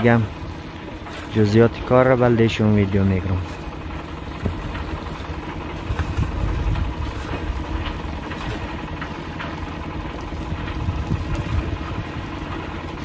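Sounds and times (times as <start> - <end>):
concrete mixer engine running: 0.0 - 13.0
sharp knocks: 4.4 - 5.0.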